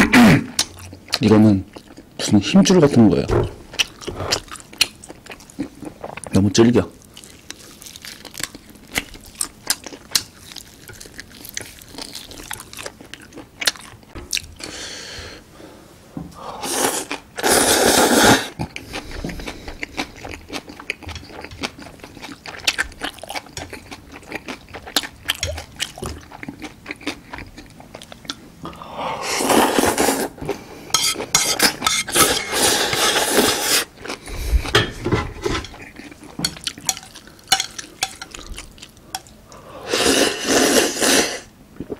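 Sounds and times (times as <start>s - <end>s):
chewing and smacking: 3.7s - 6.4s, 7.0s - 14.6s, 18.6s - 28.8s, 35.7s - 39.4s
noodle slurping: 39.8s - 41.9s.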